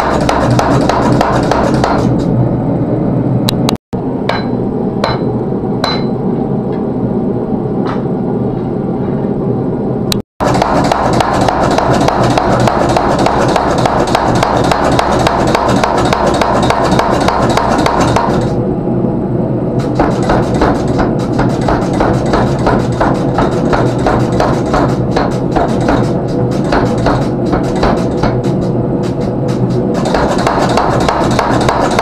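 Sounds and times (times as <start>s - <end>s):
steady running machine noise: 0.0s - 32.0s
power hammer blows: 19.8s - 32.0s.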